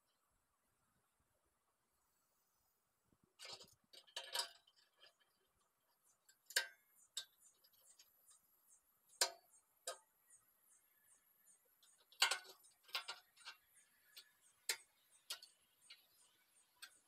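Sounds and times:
insects chirping: 0:05.1 - 0:17.0.

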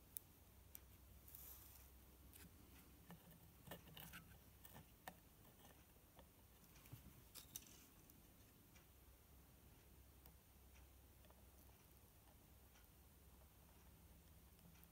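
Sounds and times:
clicks and rustles of handling wires: 0:00.1 - 0:08.6.

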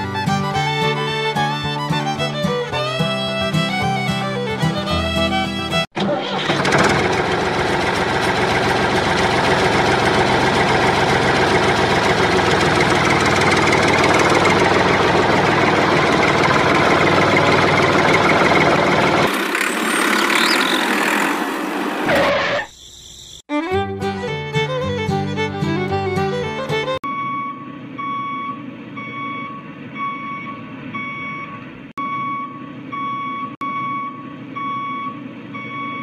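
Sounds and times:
tractor engine idling: 0:00.0 - 0:22.0.

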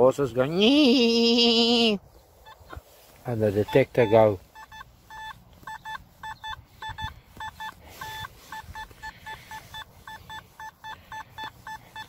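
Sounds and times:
metal detector beeps: 0:03.5 - 0:12.0.

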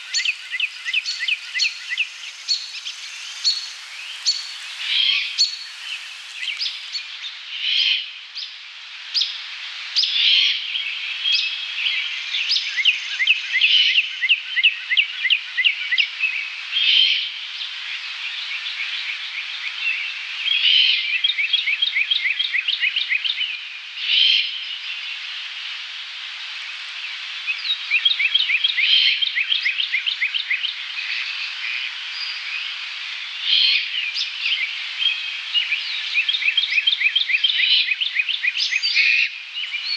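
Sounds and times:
songbirds singing: 0:00.0 - 0:07.8, 0:27.5 - 0:39.9.

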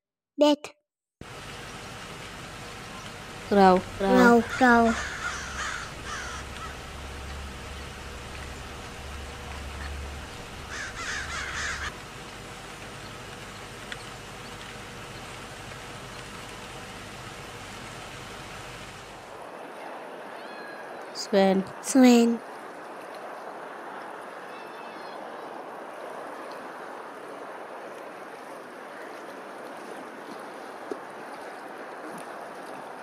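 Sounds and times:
crow cawing: 0:04.2 - 0:06.9, 0:10.6 - 0:11.9.

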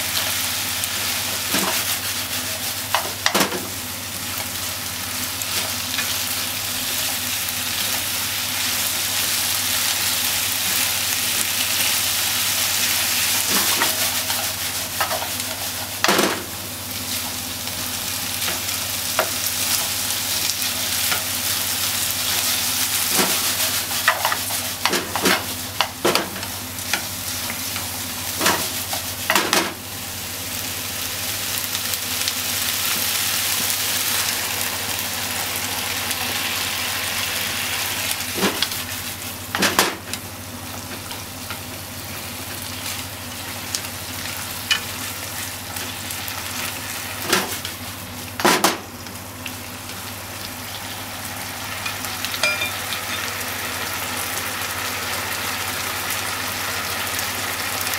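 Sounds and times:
food sizzling in a frying pan: 0:00.0 - 0:57.9.

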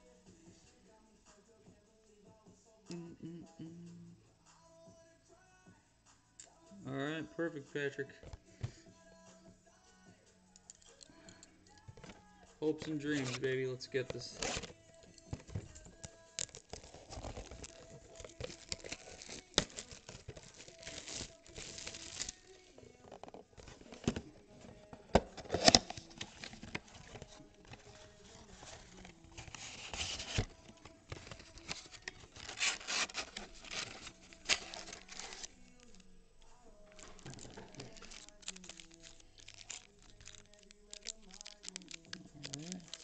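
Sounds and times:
packs crinkling: 0:11.9 - 0:43.0
cardboard box tearing: 0:14.4 - 0:14.7, 0:16.5 - 0:22.3, 0:28.4 - 0:30.5, 0:31.1 - 0:35.5.

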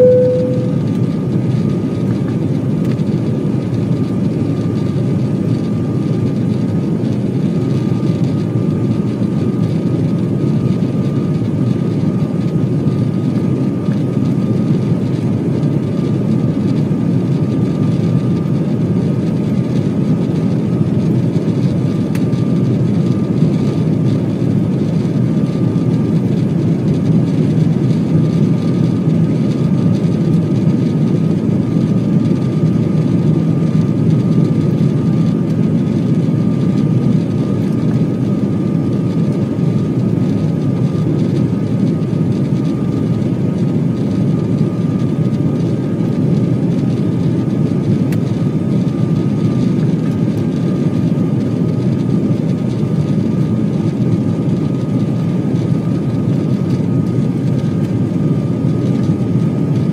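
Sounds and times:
thin steady whine: 0:00.0 - 0:02.2
airliner engine rumble: 0:00.0 - 0:59.9.

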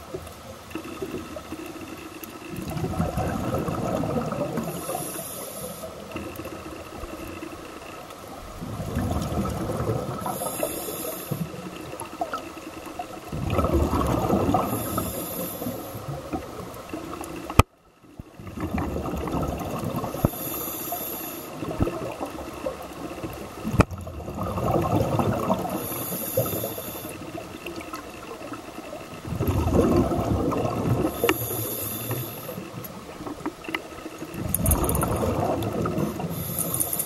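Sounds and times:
exhaled bubbles rushing: 0:02.5 - 0:05.0, 0:08.5 - 0:10.5, 0:13.1 - 0:17.5, 0:18.3 - 0:20.3, 0:21.6 - 0:26.6, 0:27.2 - 0:33.4, 0:34.1 - 0:37.0
regulator hiss on inhale: 0:04.5 - 0:06.5, 0:10.2 - 0:12.0, 0:14.5 - 0:16.1, 0:20.0 - 0:21.8, 0:25.6 - 0:27.4, 0:31.0 - 0:32.8, 0:35.8 - 0:37.0.

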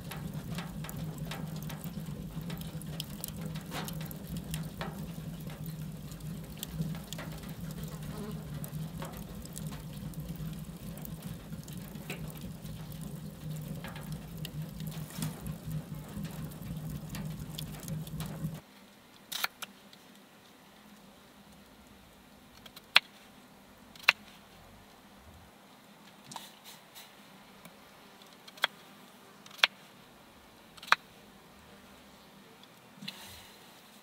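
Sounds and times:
low steady hum: 0:00.0 - 0:18.6
wood fire crackling in stove: 0:00.0 - 0:20.2.

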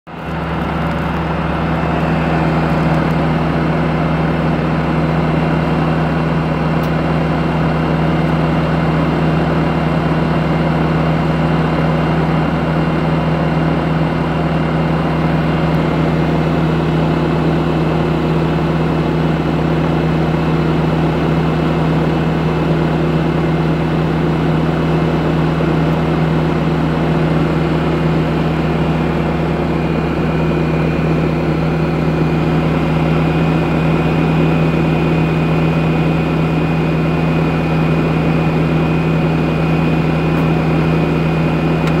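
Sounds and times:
engine idling: 0:00.1 - 0:42.0.

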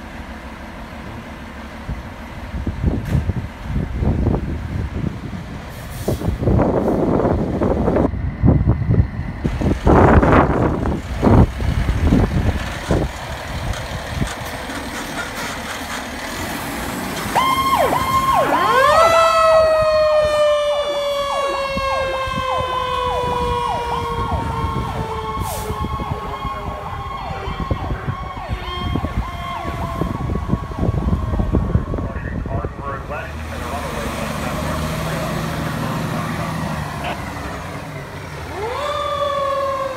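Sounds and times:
fire engine engine: 0:00.0 - 0:39.9
siren yelping: 0:17.3 - 0:32.5, 0:38.5 - 0:39.9
wailing siren tone: 0:17.3 - 0:32.8, 0:38.4 - 0:39.9.

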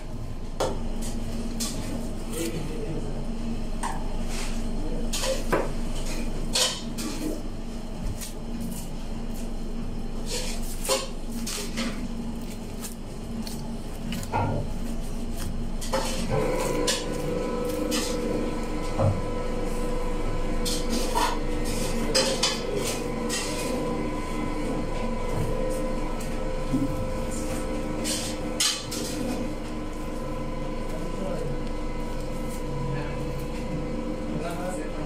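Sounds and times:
machine hum: 0:05.8 - 0:35.0
knife cutting and scraping meat: 0:10.2 - 0:18.6.

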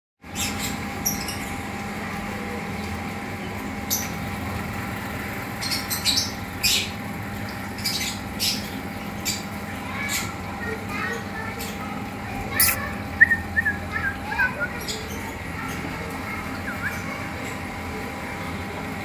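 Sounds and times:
steady background hum: 0:00.2 - 0:19.0
bird high-pitched calls: 0:05.6 - 0:17.6.

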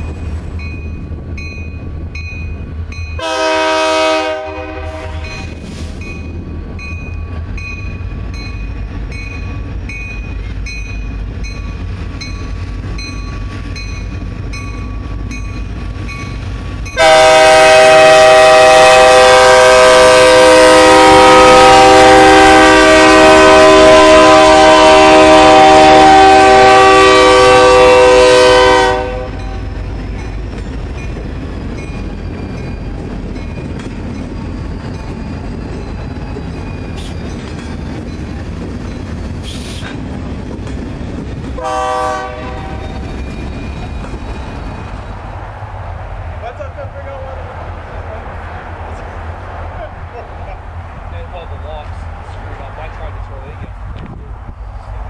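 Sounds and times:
diesel engines rumbling: 0:00.0 - 0:55.0
locomotive air horn blasts: 0:03.2 - 0:05.6, 0:17.0 - 0:29.6, 0:41.6 - 0:42.9.

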